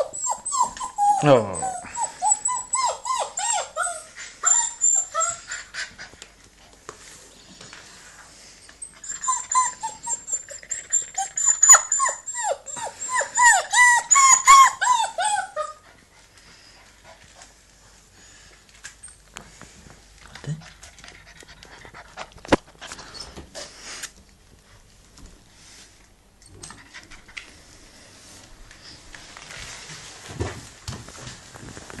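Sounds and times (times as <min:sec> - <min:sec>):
puppy whining: 0:00.0 - 0:06.2, 0:08.5 - 0:16.0, 0:21.2 - 0:23.8.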